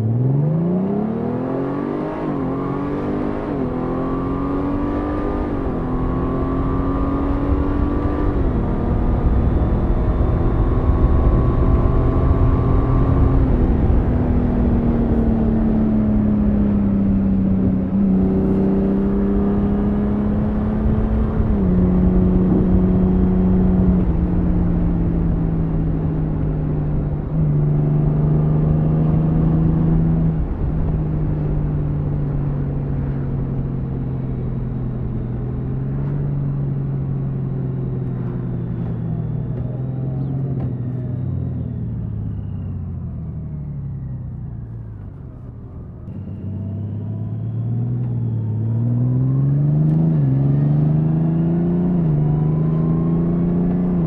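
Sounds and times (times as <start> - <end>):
motorcycle engine accelerating: 0.0 - 54.0.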